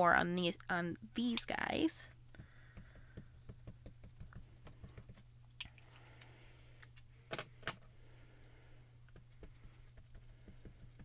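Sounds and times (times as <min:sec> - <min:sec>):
ink pad tapping on stamps: 0:02.4 - 0:05.2.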